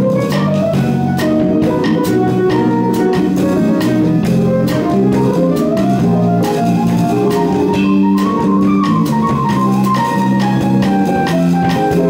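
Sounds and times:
bass guitar: 0.0s - 12.0s
drum kit beat: 0.0s - 12.0s
guitar: 0.0s - 12.0s
piano: 0.0s - 12.0s.

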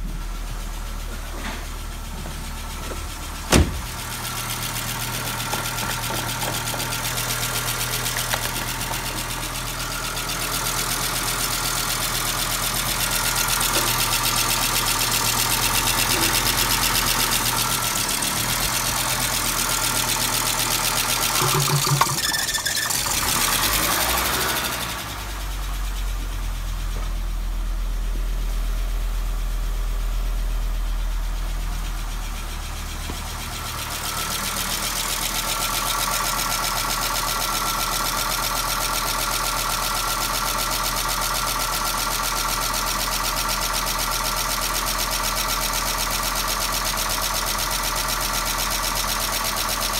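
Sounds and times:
car engine idling: 0.0s - 49.9s
fast even engine ticking: 3.2s - 26.5s.

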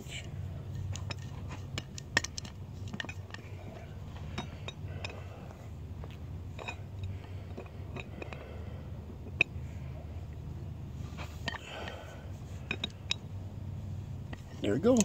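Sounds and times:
steady low hum: 0.0s - 15.0s
wrench clinking on metal: 6.6s - 8.4s, 11.4s - 12.0s, 12.7s - 13.3s.

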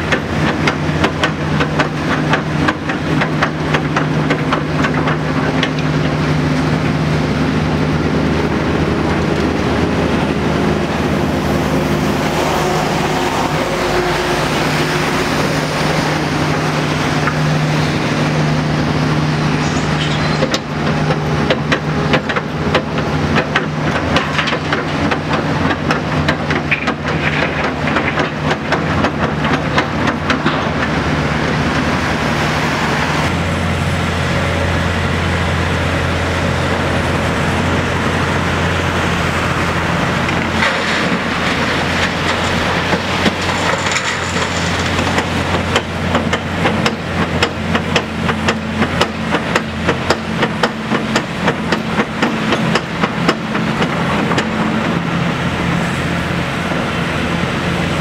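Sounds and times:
sharp knocks and clatters: 0.0s - 6.2s, 19.6s - 31.0s, 40.3s - 55.0s
excavator diesel engine and hydraulics: 0.0s - 58.0s.

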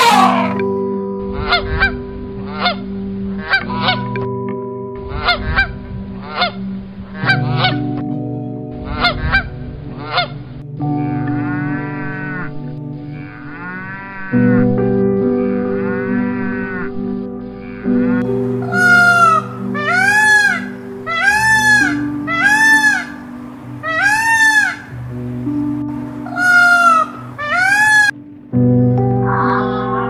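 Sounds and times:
cattle mooing: 0.0s - 0.6s, 10.9s - 14.7s, 15.4s - 20.8s
loud animal call: 0.0s - 0.6s, 13.1s - 14.6s, 17.6s - 25.0s, 26.2s - 28.2s
waterfowl honking: 0.0s - 0.6s, 1.3s - 4.2s, 5.1s - 8.0s, 8.9s - 10.4s, 11.0s - 14.7s, 15.6s - 25.6s, 26.2s - 28.2s.

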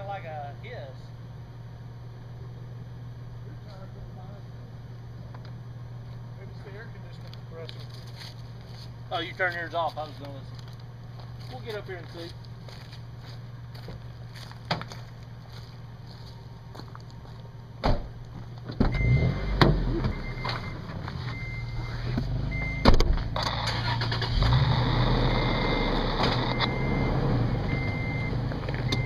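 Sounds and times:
off-road vehicle engine: 0.0s - 29.0s
short high beeps: 19.0s - 22.9s.

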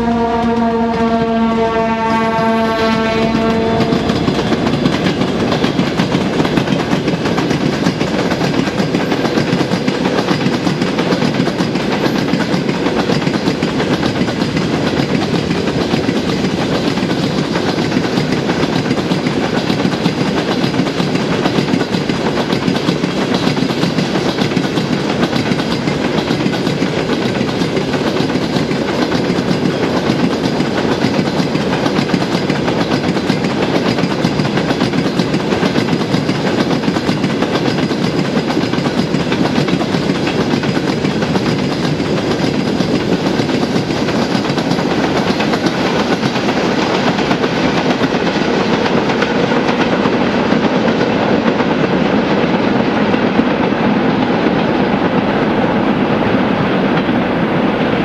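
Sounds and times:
locomotive horn: 0.0s - 4.9s
locomotive engine rumble: 0.0s - 49.2s
train wheels clattering on rail joints: 0.0s - 58.0s.

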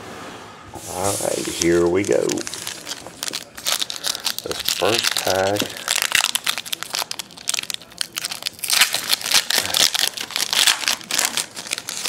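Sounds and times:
foil wrapper tearing and crinkling: 1.5s - 12.0s.

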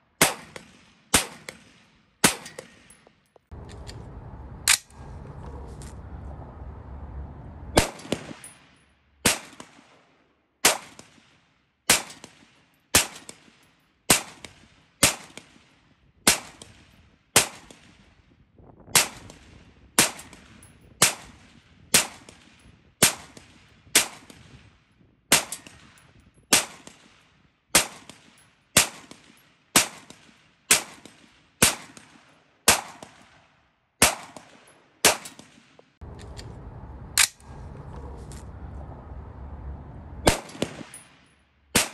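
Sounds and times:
rifle shots: 0.2s - 2.9s, 7.7s - 9.9s, 34.0s - 35.8s, 40.2s - 41.9s.

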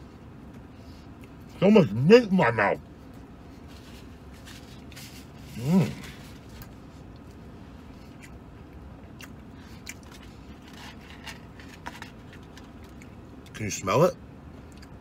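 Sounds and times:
man chewing food: 0.4s - 1.6s, 3.0s - 13.6s, 14.6s - 15.0s
man humming mmm: 5.4s - 6.2s.

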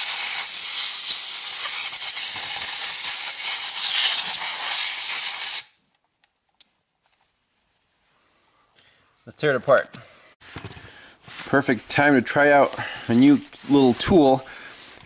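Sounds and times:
compressed-air blow gun hissing: 0.0s - 5.7s.

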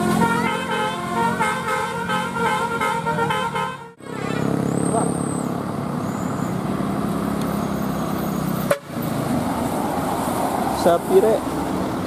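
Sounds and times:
multi-tone bus horn tune: 0.0s - 4.6s, 8.7s - 9.0s
bus engine running: 0.0s - 12.0s
road noise: 0.0s - 12.0s.

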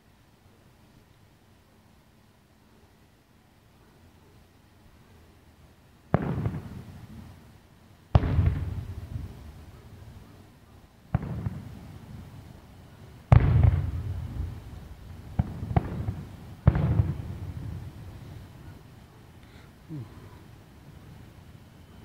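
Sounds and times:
sharp fireworks cracks: 6.0s - 22.0s
fireworks booming: 6.1s - 7.3s, 8.1s - 10.3s, 11.1s - 18.8s.

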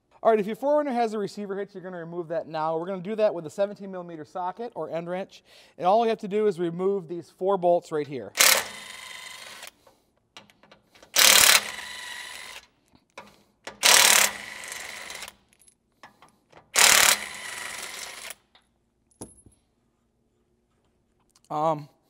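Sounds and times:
impact wrench hammering: 10.4s - 12.6s, 13.2s - 15.3s, 16.0s - 18.5s.

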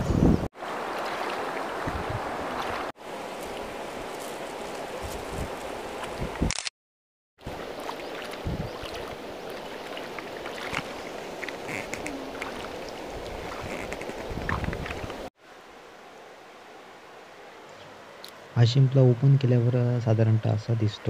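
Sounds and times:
small water splashes: 0.6s - 3.8s, 7.4s - 15.1s
river water running over stones: 0.6s - 6.1s, 7.4s - 18.5s.

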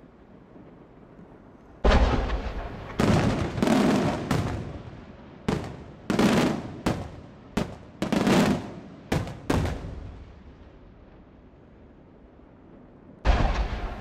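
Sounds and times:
fireworks bursting with echo: 1.8s - 10.8s, 13.2s - 14.0s.

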